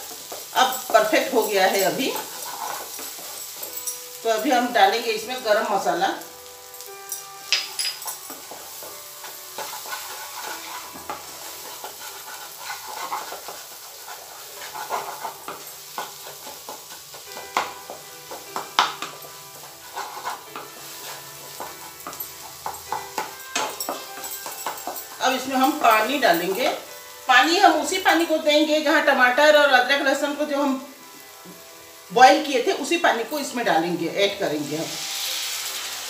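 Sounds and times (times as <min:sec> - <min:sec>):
masala sizzling in oil: 0:00.0 - 0:36.0
wooden spatula scraping pan: 0:00.1 - 0:03.6, 0:08.0 - 0:26.6.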